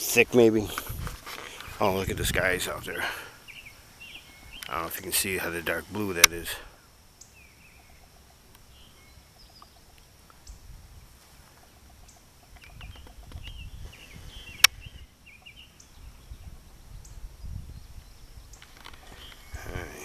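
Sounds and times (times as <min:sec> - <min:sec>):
low rumble on microphone: 0:00.6 - 0:03.3, 0:12.6 - 0:20.0
faint bird chirps: 0:01.4 - 0:20.0.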